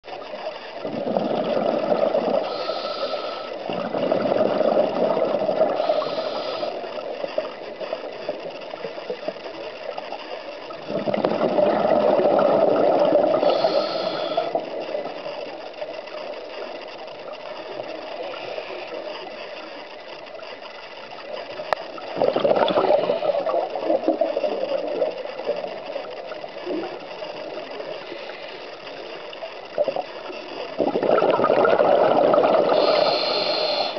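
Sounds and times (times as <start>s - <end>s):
exhaled air bubbles underwater: 0.8s - 9.4s, 10.6s - 15.2s, 21.9s - 28.7s, 29.6s - 33.9s.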